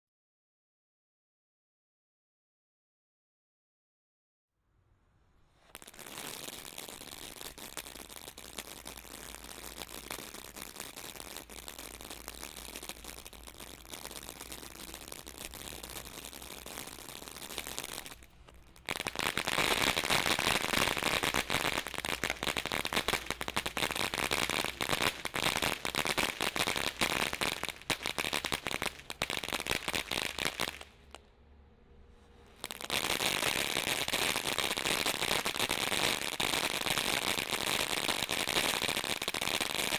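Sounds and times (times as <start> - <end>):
firework fountain crackling: 5.5 - 31.3, 32.2 - 39.9.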